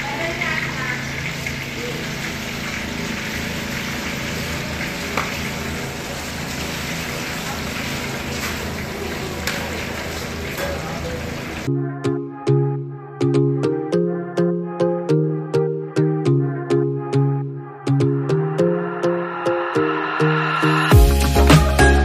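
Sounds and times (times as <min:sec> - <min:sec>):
oil sizzling and bubbling: 0:00.0 - 0:11.7.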